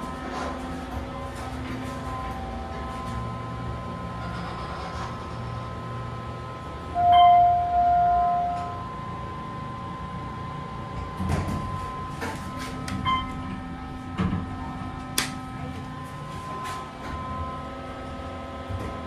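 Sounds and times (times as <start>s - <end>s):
elevator chime: 6.9s - 9.6s, 13.0s - 13.6s.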